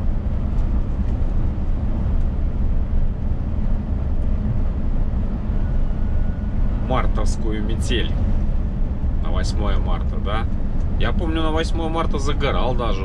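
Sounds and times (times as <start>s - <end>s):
road noise: 0.0s - 13.0s
truck engine rumble: 0.0s - 13.0s.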